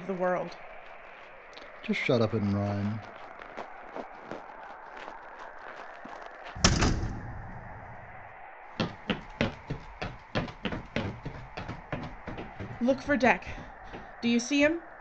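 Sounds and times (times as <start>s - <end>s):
heavy door slamming: 6.6s - 7.4s
hurried footsteps: 8.7s - 14.9s.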